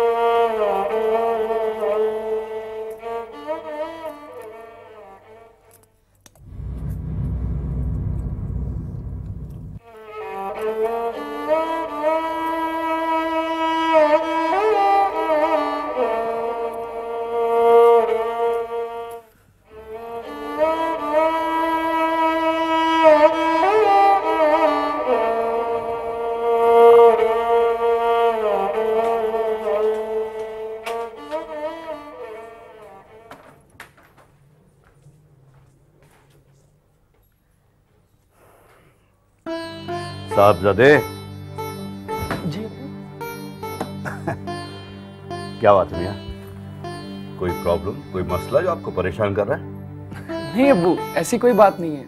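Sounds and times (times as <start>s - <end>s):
bowed string melody: 0.0s - 33.5s, 39.5s - 52.0s
low rumble: 6.4s - 9.8s.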